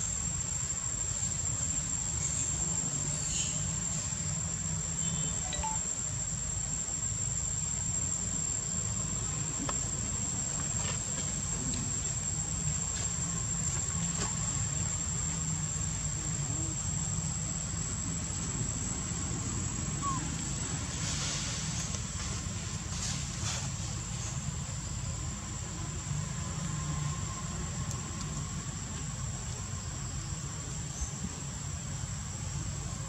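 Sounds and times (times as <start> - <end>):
insects droning: 0.0 - 33.0
faint chirps: 5.0 - 6.0, 20.0 - 20.4.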